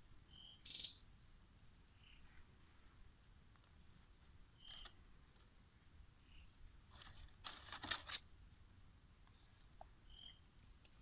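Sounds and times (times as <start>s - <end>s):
palm leaves rustling: 6.8s - 8.3s.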